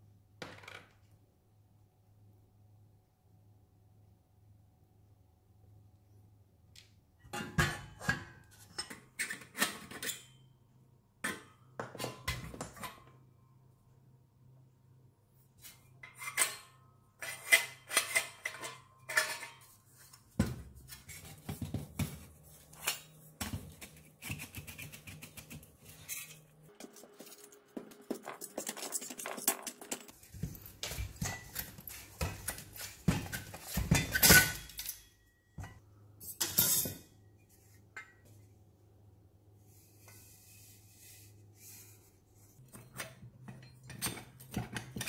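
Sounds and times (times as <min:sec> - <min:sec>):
sheet metal parts clinking: 0:16.0 - 0:19.8, 0:28.1 - 0:37.1.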